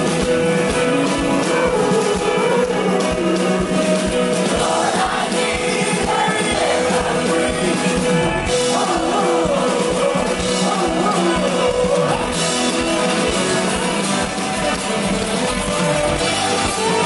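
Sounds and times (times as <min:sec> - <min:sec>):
acoustic guitar: 0:00.0 - 0:17.0
live band with singing: 0:00.0 - 0:17.0.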